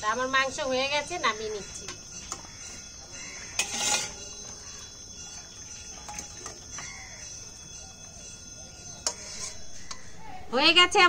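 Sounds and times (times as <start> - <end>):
faint bird calls: 1.2 - 10.5
metal pot scraping: 1.7 - 5.2, 8.9 - 10.1.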